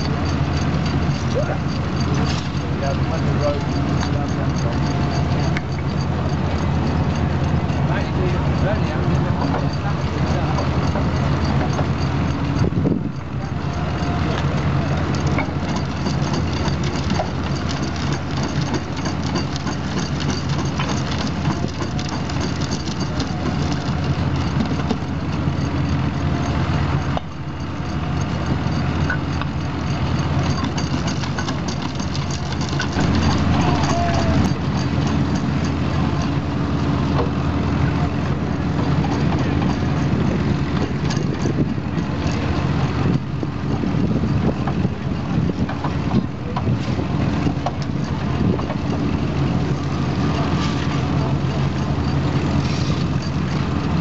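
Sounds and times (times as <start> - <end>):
stationary engines running: 0.0 - 54.0
stone crusher knocking and clattering: 15.2 - 25.4, 28.7 - 36.2.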